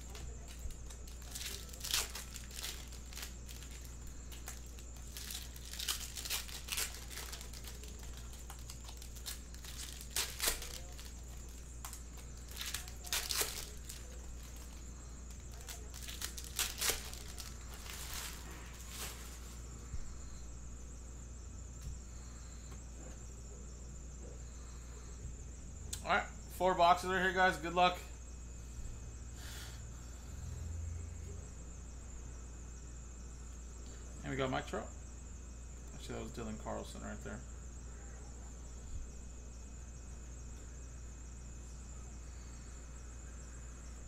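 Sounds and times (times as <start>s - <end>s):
foil wrappers torn and crinkled: 0.0s - 19.6s
steady low hum: 0.0s - 44.0s.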